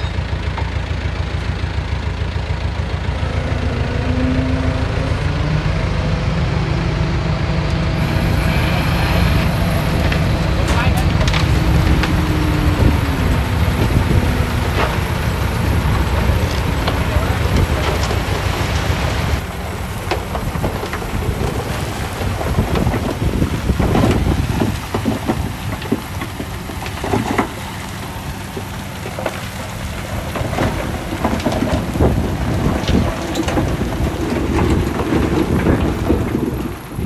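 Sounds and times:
diesel engine under load: 0.0 - 37.0
crackle of soil and stones: 7.6 - 37.0.

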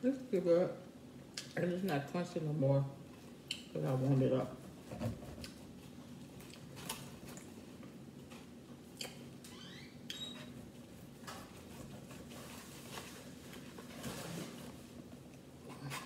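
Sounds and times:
chewing: 5.4 - 8.0.

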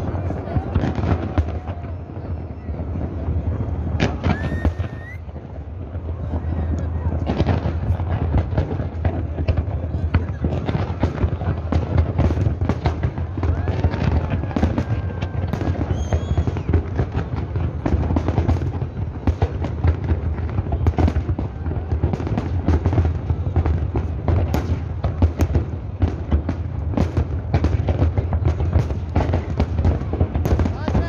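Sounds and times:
fireworks bursting and crackling: 0.0 - 31.0.

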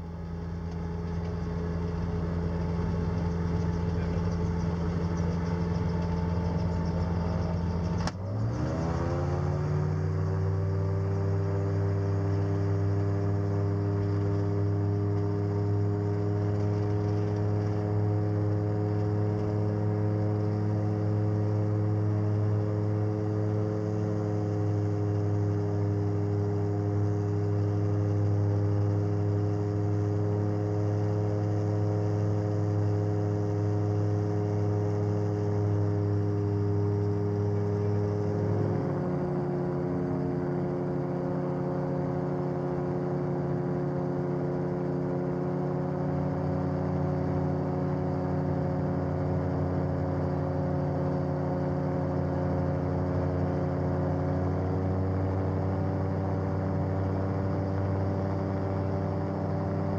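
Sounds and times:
aircraft engine droning: 0.0 - 59.9.

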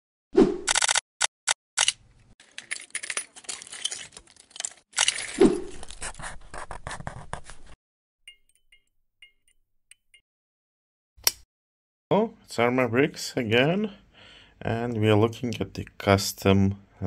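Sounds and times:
plastic bricks clicking and rattling: 2.4 - 6.0.

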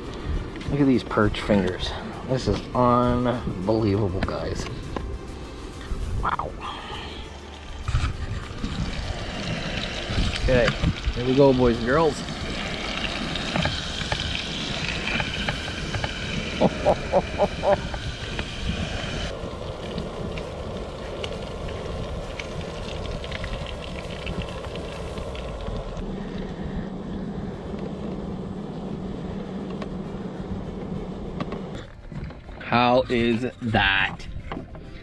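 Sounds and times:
steady low hum: 0.0 - 35.0
fish sizzling in oil: 7.3 - 26.0
wind on microphone: 7.7 - 32.6.

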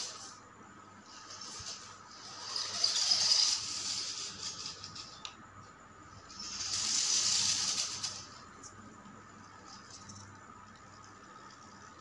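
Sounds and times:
rc car motors whining: 0.0 - 0.4, 1.0 - 5.3, 6.0 - 8.4.

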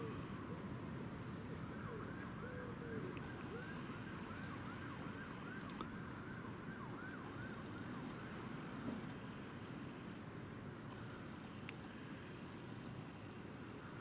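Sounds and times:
faint siren yelping: 1.6 - 8.6.

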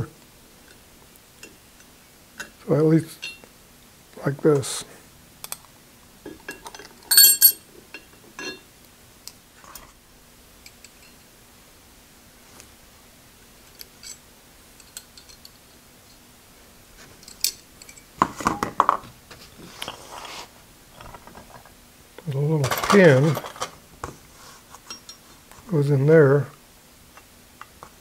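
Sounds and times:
ringing metal clink: 3.2 - 3.5, 6.5 - 8.6.

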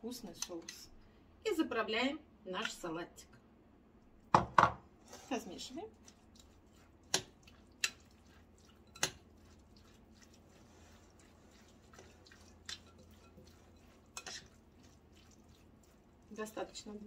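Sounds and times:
spoon stirring wet salad: 5.0 - 17.0.

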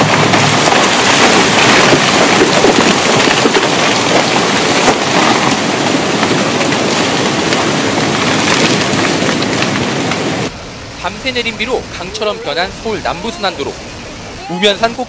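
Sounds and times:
water splashing: 0.0 - 10.6
landslide rushing: 0.0 - 15.0
trees cracking: 0.0 - 15.0.

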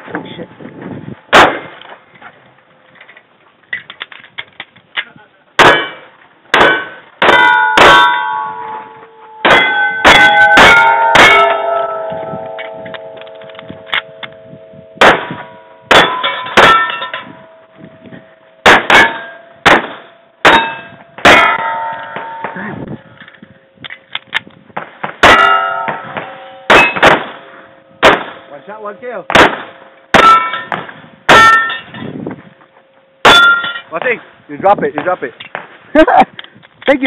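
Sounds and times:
pistol shots: 5.6 - 8.2, 15.0 - 16.9, 18.6 - 22.6, 25.0 - 28.5, 29.3 - 31.7
steel targets clanging: 5.6 - 14.4, 15.0 - 17.7, 18.6 - 22.7, 25.2 - 32.2, 32.9 - 34.3.

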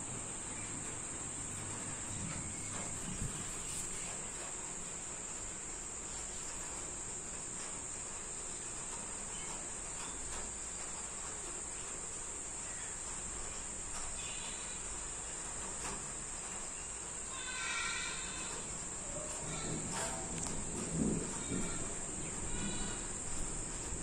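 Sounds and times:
crickets trilling: 0.0 - 24.0
faint ticks: 12.7 - 16.7.

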